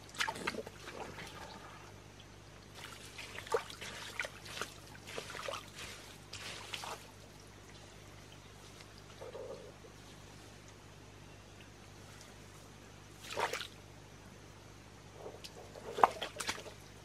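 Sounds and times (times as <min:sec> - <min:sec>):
hands squelching in wet mud: 0:02.7 - 0:07.4, 0:15.5 - 0:16.8.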